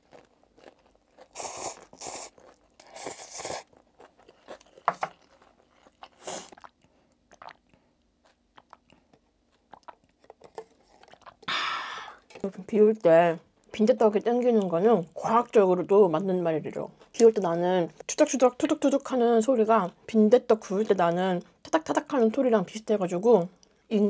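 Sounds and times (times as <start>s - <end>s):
chewing with mouth clicks: 0.0s - 11.5s
crunchy bites: 0.0s - 11.5s
noodle slurping: 1.2s - 3.9s, 5.9s - 7.7s.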